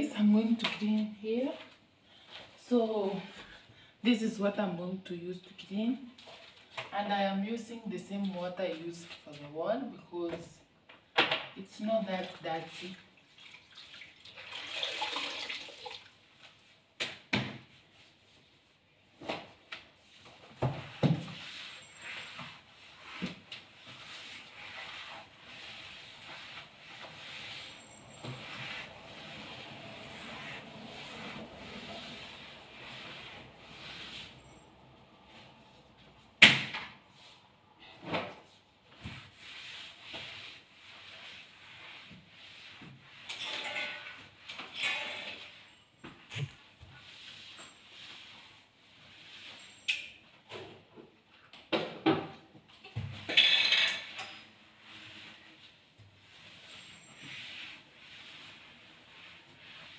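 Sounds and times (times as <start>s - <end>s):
water trickling into a bucket: 13.3s - 16.2s
wet mop swishing on wooden floor: 17.7s - 36.3s, 38.3s - 43.3s, 45.4s - 49.8s, 54.7s - 59.9s.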